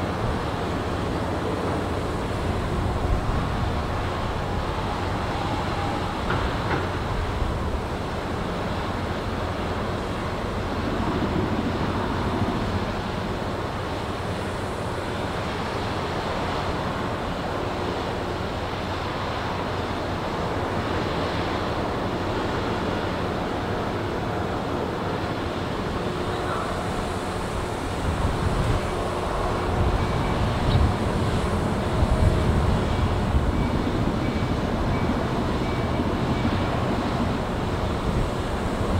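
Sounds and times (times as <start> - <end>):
ferry engines rumbling: 0.0 - 38.9
wind on microphone: 26.6 - 38.9.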